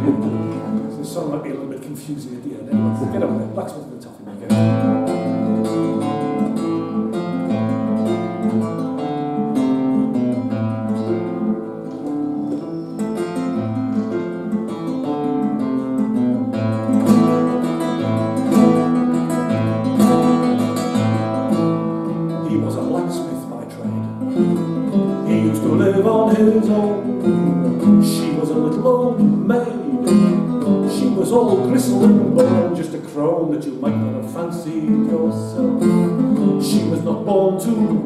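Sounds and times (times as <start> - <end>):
classical guitar playing: 0.0 - 38.0.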